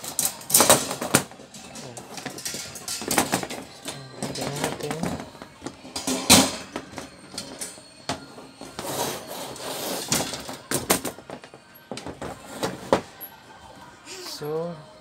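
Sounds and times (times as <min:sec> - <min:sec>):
fan parts clicking and rattling: 0:00.0 - 0:08.8.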